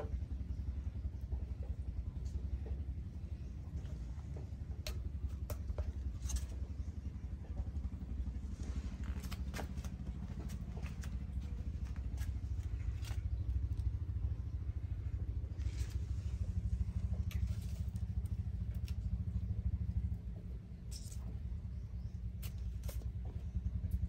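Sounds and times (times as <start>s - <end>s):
low motor hum: 0.0s - 24.0s
faint clicks and scrapes: 3.4s - 7.7s, 15.5s - 19.4s.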